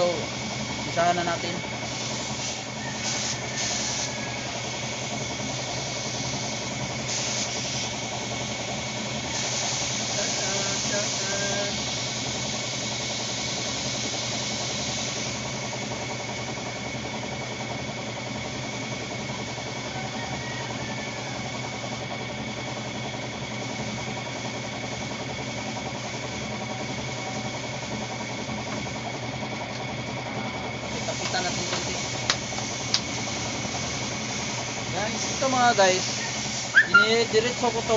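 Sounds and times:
spray gun hissing: 0.0 - 16.0, 30.9 - 37.9
air compressor humming: 0.0 - 37.9.

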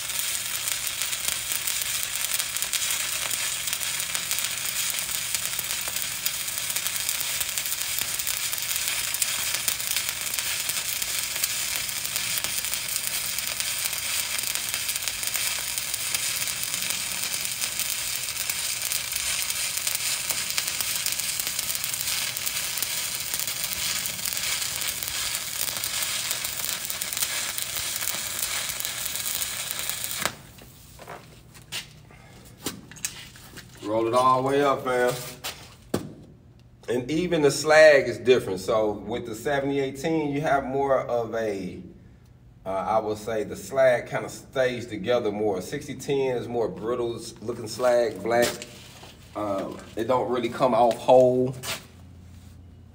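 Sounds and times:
welding arc crackling hiss: 0.0 - 31.9, 32.7 - 35.6, 45.6 - 51.9.

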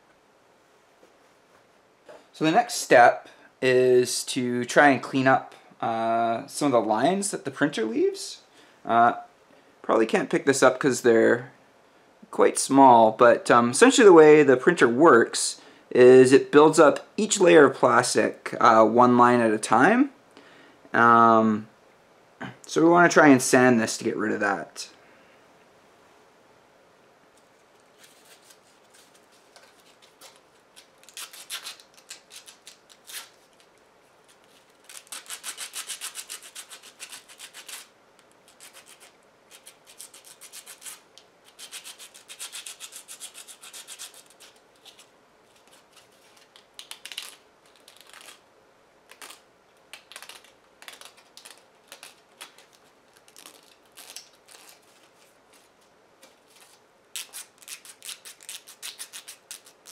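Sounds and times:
sandpaper scratching plastic: 31.0 - 33.4, 34.3 - 48.4, 50.0 - 55.7, 56.5 - 59.9.

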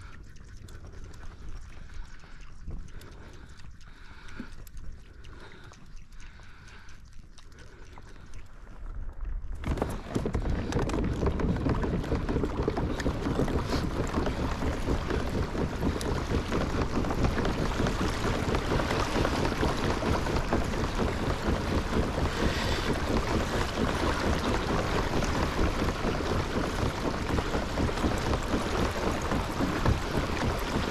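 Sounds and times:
water rushing along kayak hull: 0.0 - 30.9
wind buffeting microphone: 9.3 - 30.9.

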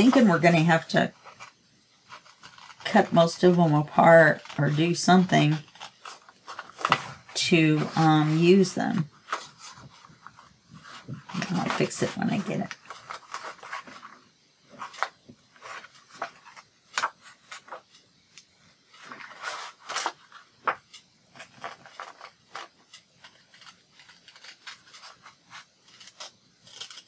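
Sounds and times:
paper rustling: 0.0 - 18.1, 18.8 - 27.0
scissors snipping paper: 21.4 - 27.0.

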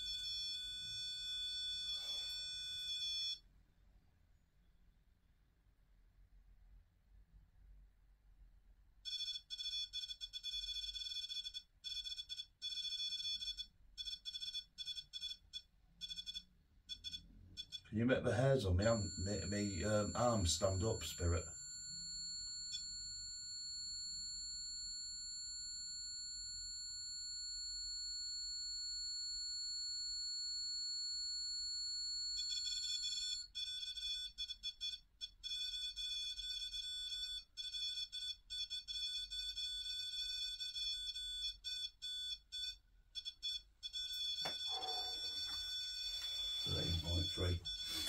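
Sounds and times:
stuttering higher alarm tones: 18.2 - 21.6, 44.2 - 48.0
steady high electronic tones: 44.4 - 48.0.

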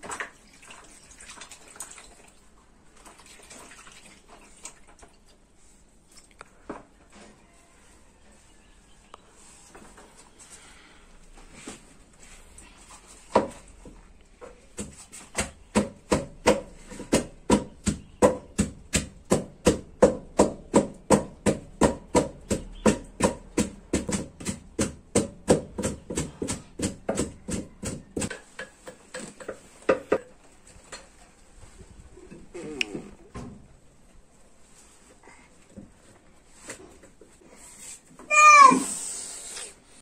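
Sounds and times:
wooden pestle pounding in mortar: 14.8 - 29.0.

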